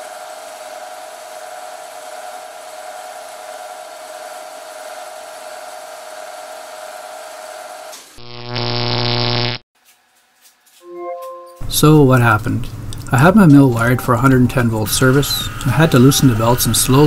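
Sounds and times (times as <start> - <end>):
loud low buzz: 8.2 - 9.6
milling machine spindle whine: 14.1 - 17.0.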